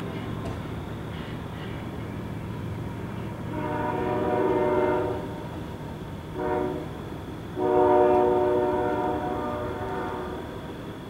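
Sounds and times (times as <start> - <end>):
low train rumble: 0.0 - 11.0
locomotive air horn blasts: 3.4 - 5.5, 6.4 - 7.0, 7.6 - 10.6.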